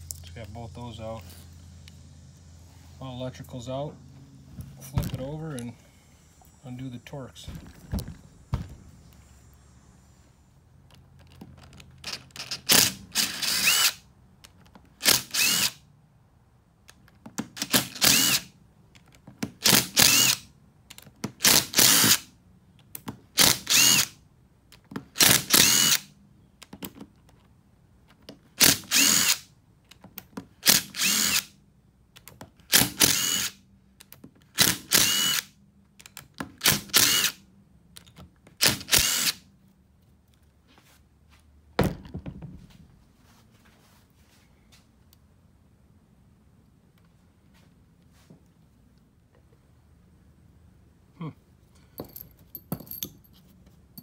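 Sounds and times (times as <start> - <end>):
cordless driver bursts: 12.0 - 14.0, 15.0 - 15.8, 17.6 - 18.5, 19.6 - 20.5, 21.4 - 22.3, 23.4 - 24.2, 25.2 - 26.1, 28.6 - 29.5, 30.6 - 31.6, 32.7 - 33.6, 34.5 - 35.5, 36.6 - 37.4, 38.6 - 39.4.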